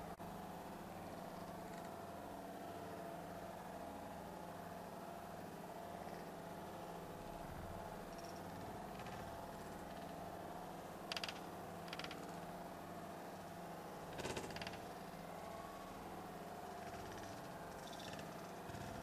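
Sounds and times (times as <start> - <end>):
faint electrical hum with whine: 0.0 - 19.0.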